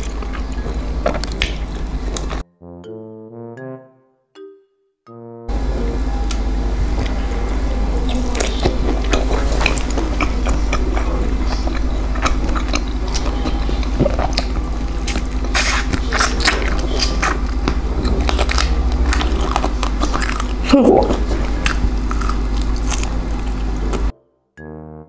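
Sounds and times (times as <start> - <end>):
chewing meat: 0.0 - 2.4, 6.3 - 24.1
low hum: 0.0 - 3.5, 5.2 - 24.2
background music: 0.0 - 8.7.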